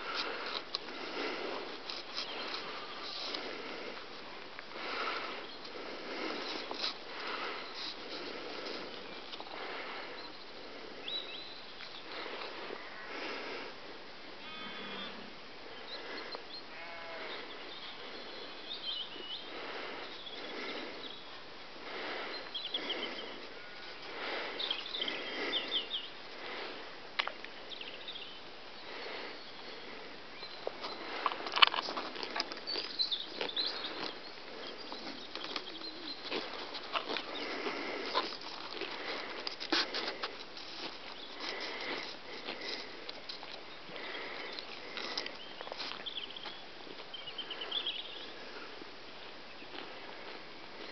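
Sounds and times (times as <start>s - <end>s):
rustling hiss: 0.0s - 50.9s
lamb bleating: 16.7s - 17.4s
lamb tearing grass: 35.0s - 43.6s.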